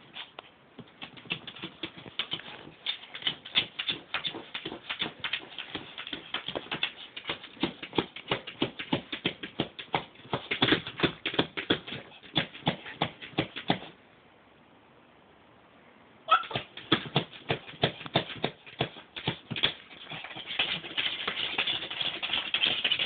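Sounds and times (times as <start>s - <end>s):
puppy scratching at plastic tub: 18.7s - 23.0s.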